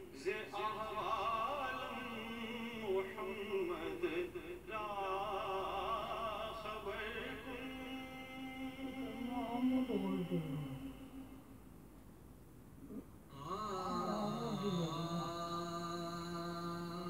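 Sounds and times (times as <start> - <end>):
person singing with vibrato: 0.2 - 11.6, 13.3 - 17.0.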